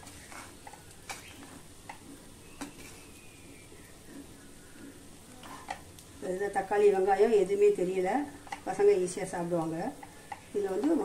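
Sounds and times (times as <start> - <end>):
metal spatula scraping rice: 0.0 - 3.2, 5.4 - 5.8.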